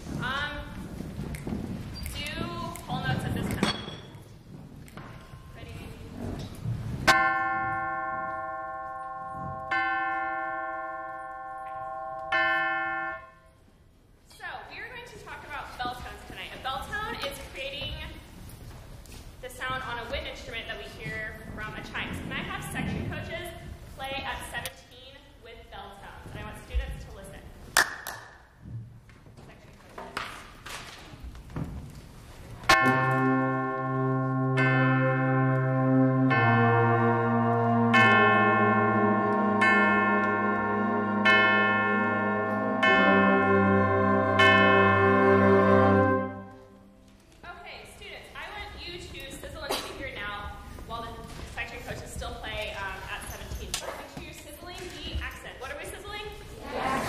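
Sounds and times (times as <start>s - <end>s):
ensemble playing held chord: 32.7s - 47.0s.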